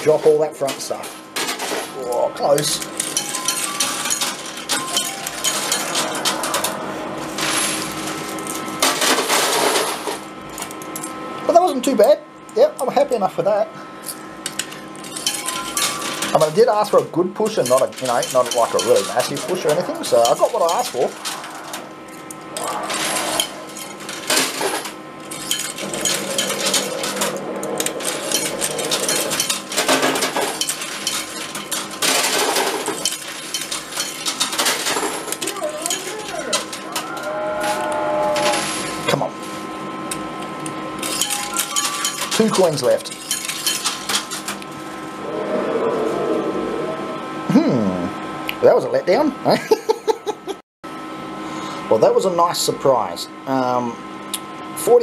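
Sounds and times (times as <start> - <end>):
coins clattering: 2.7 - 6.8, 7.4 - 10.2, 14.6 - 16.5, 17.5 - 21.6, 22.7 - 36.9, 41.0 - 44.5
coin pusher metallic clicks: 2.8 - 6.8, 17.6 - 21.4, 41.0 - 44.6
coins clinking and sliding: 2.9 - 6.8, 7.4 - 10.2, 14.6 - 16.4, 17.6 - 21.6, 22.6 - 36.8, 41.0 - 44.5
coins spilling and clattering: 3.0 - 6.3.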